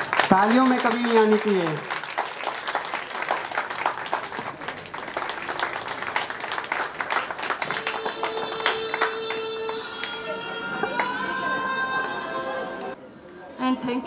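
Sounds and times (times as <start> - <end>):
audience applauding: 0.0 - 12.2
steady held tone: 7.7 - 13.0.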